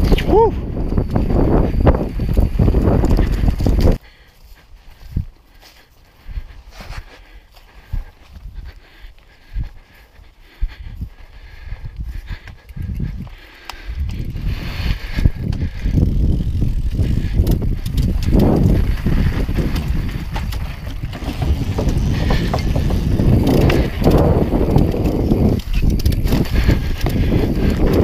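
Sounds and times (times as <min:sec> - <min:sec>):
bike chain and frame rattling: 0:00.0 - 0:04.3, 0:12.1 - 0:28.0
bike tyres rumbling on dirt: 0:00.0 - 0:04.3, 0:12.2 - 0:28.0
tyres clattering on wooden bridge: 0:19.6 - 0:25.0.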